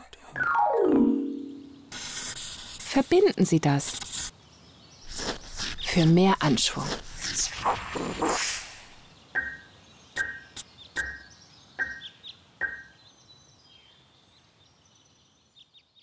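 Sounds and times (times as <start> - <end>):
bird-like chirps: 9.0 - 14.0.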